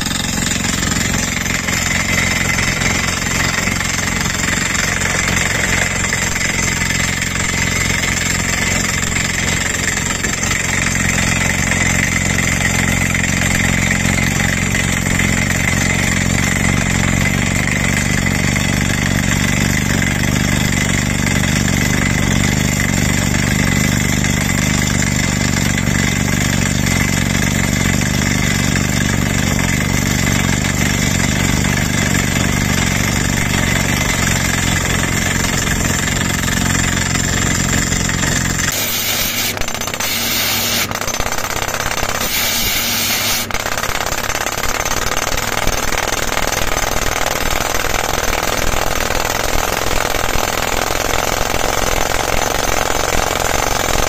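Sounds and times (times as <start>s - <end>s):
deep engine drone: 0.0s - 17.4s, 31.4s - 45.7s
pneumatic drill hammering: 0.0s - 54.0s.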